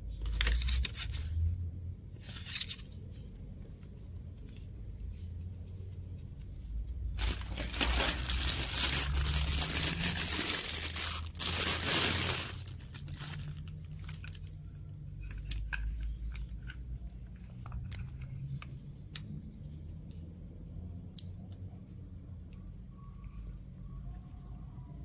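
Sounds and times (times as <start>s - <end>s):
plastic bags and bubble wrap crinkling: 7.1s - 14.8s.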